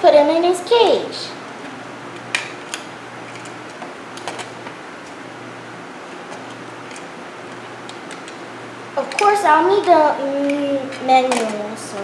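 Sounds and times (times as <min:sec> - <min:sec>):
faint steady hum: 0:00.0 - 0:12.0
plastic toy pieces clicking: 0:11.3 - 0:11.6.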